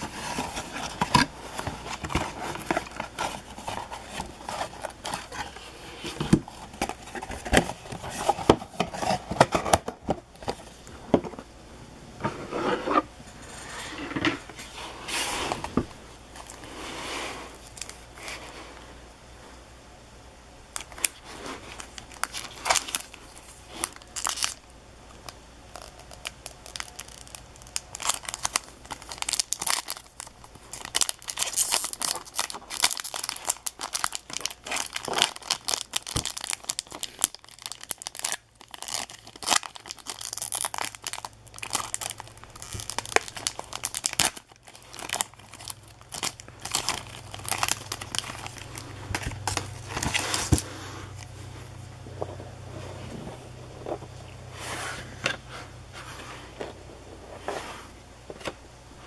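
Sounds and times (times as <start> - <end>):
card wrappers tearing and crinkling: 0.0 - 10.6, 20.8 - 24.7, 25.7 - 51.3.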